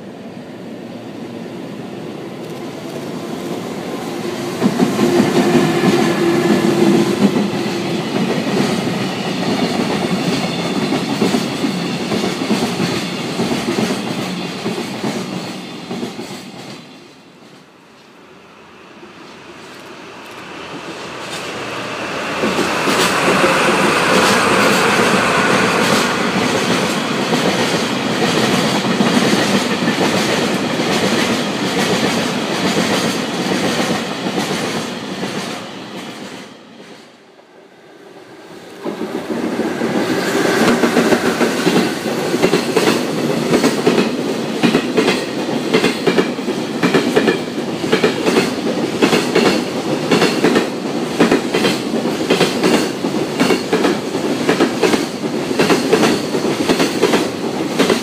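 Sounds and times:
diesel locomotive engines: 0:00.0 - 0:58.0
train wheels clacking on rail joints: 0:19.2 - 0:37.2, 0:38.7 - 0:58.0.

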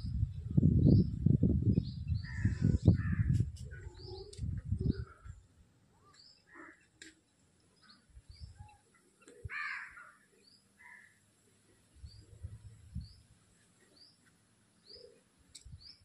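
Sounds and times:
low rumble on microphone: 0:00.0 - 0:05.5, 0:12.0 - 0:13.3
small birds chirping: 0:00.0 - 0:16.0
crows cawing: 0:06.5 - 0:06.9, 0:09.4 - 0:10.2, 0:10.8 - 0:11.2.

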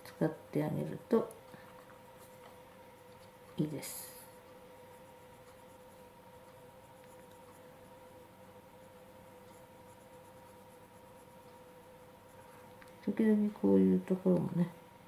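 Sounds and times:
faint hum: 0:00.0 - 0:15.0
pencil scratching on paper: 0:04.8 - 0:12.7.

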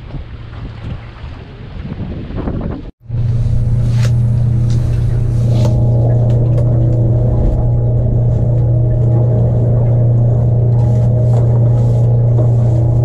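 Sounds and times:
outboard motor humming: 0:03.0 - 0:13.0.

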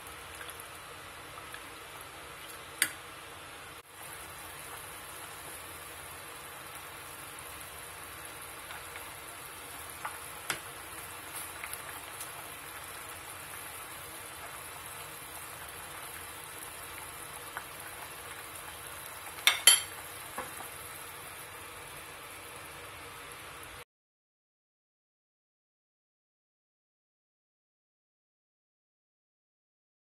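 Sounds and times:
soup simmering hiss: 0:00.0 - 0:23.8
spoon clinking against pot: 0:19.4 - 0:19.9.

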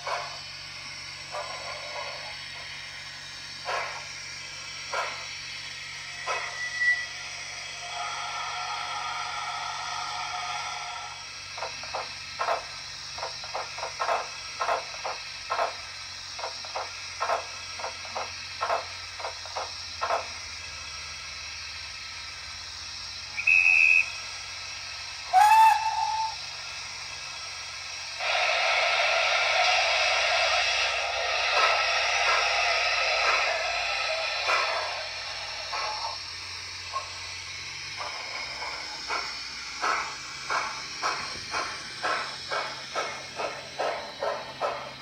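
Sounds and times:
steady steam hiss: 0:00.0 - 0:45.0
brief high whistle: 0:06.2 - 0:07.4, 0:23.3 - 0:24.3, 0:25.3 - 0:26.4
steam whistle: 0:06.2 - 0:11.2, 0:23.3 - 0:24.4, 0:25.2 - 0:26.5.

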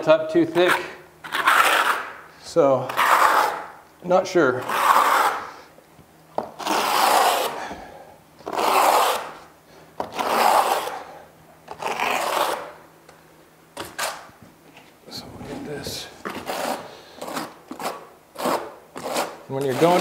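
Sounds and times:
float scraping over membrane: 0:06.6 - 0:07.6, 0:15.4 - 0:20.0.

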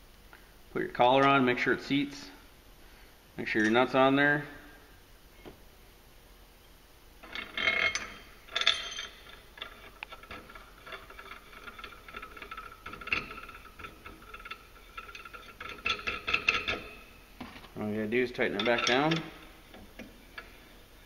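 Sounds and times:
tool ticking and rattling on threads: 0:07.2 - 0:17.6, 0:18.3 - 0:20.6
metal parts clanking: 0:07.2 - 0:20.6.

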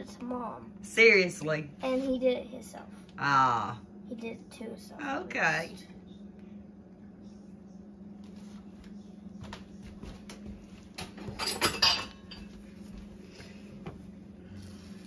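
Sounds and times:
dishes clattering: 0:10.9 - 0:12.6.

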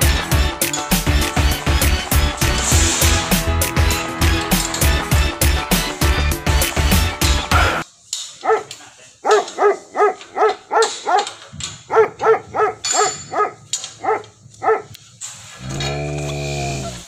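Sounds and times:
dog barking: 0:08.4 - 0:14.9.

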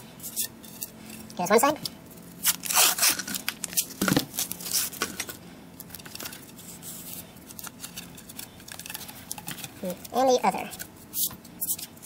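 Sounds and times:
tape tearing and crinkling: 0:02.4 - 0:06.6.

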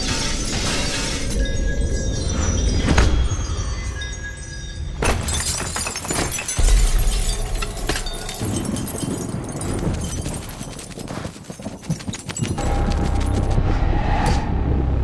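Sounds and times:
falling debris clattering and tinkling: 0:00.0 - 0:13.5
low rumble: 0:12.6 - 0:15.0.

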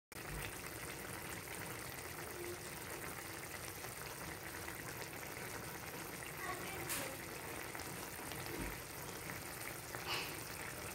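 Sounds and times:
sauce bubbling in a wok: 0:00.1 - 0:10.9.

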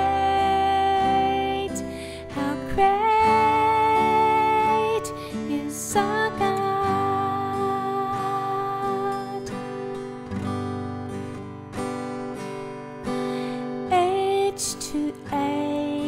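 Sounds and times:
person singing: 0:00.0 - 0:09.9, 0:13.8 - 0:16.0
acoustic guitar strumming: 0:00.0 - 0:16.0.

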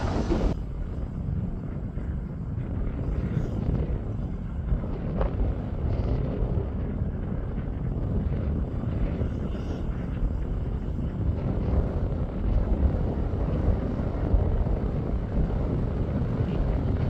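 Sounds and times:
distant heavy engines rumbling: 0:00.0 - 0:00.6
wind buffeting microphone: 0:00.0 - 0:17.0.

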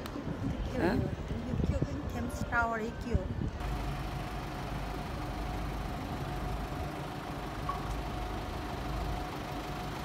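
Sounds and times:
low mechanical rumble: 0:03.4 - 0:10.0.

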